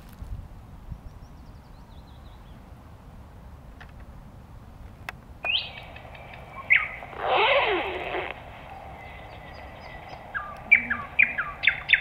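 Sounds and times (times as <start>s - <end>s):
nightingale singing: 5.4s - 12.0s.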